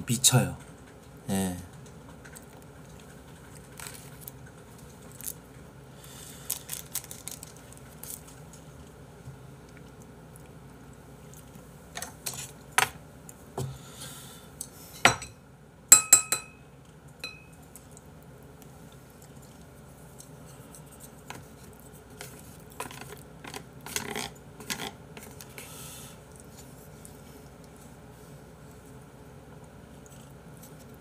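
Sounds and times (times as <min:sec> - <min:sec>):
utensils clinking against dishes: 0:15.0 - 0:16.6, 0:17.2 - 0:17.6.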